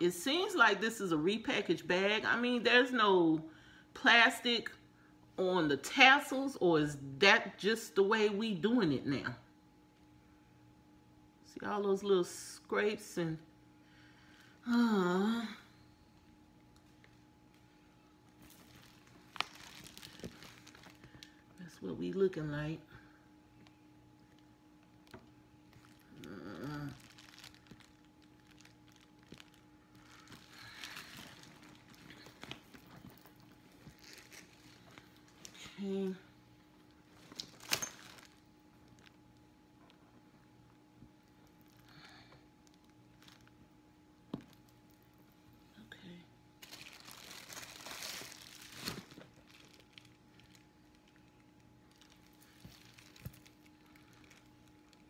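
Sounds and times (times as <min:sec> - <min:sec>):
plastic wrapping crinkling: 0:16.7 - 0:21.4, 0:23.6 - 0:35.7, 0:36.8 - 0:40.0, 0:42.6 - 0:43.6, 0:46.6 - 0:55.0.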